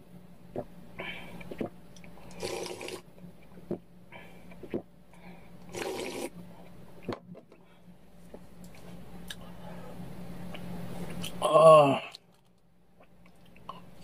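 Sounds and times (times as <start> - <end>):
steady low hum: 0.0 - 14.0
person slurping broth: 2.3 - 3.0, 5.7 - 6.3.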